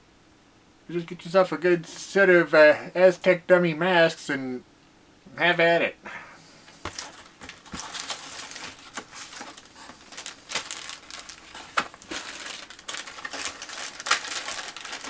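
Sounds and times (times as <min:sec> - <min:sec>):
plastic bags crinkling: 0:06.9 - 0:15.0.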